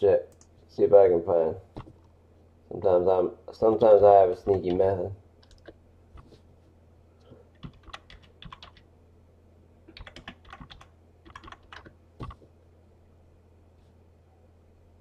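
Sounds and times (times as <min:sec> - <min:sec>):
low steady hum: 0:00.0 - 0:15.0
keyboard typing clicks: 0:05.4 - 0:05.8, 0:07.6 - 0:08.8, 0:09.9 - 0:12.4.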